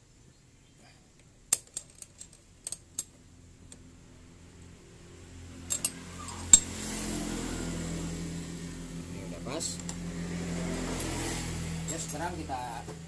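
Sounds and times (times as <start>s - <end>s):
metallic clicks of hand tools: 5.7s - 6.7s.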